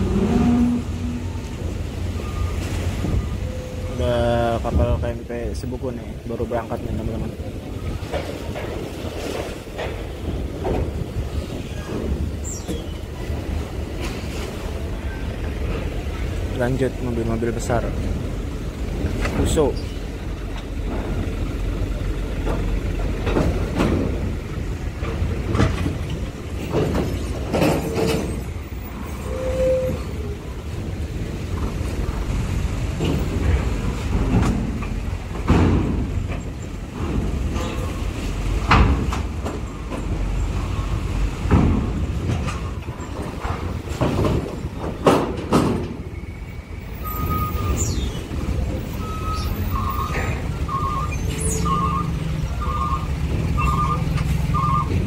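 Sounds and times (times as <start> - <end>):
truck engines rumbling: 0.0 - 55.0
wheels clanking on metal ramp: 19.1 - 30.2, 32.8 - 40.5, 41.4 - 55.0.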